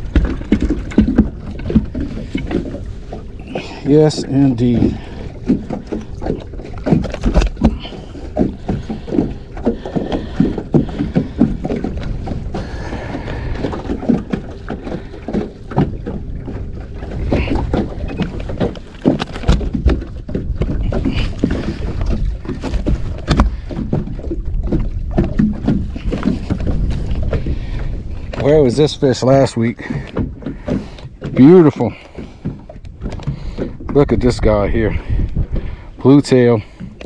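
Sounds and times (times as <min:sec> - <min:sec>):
fish thumping on boat deck: 0:00.0 - 0:28.8
low wind rumble: 0:00.0 - 0:37.0.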